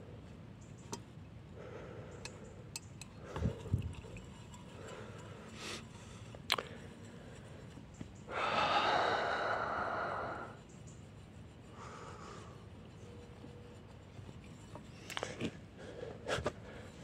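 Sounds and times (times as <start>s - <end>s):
long breathy sigh: 8.3s - 10.6s.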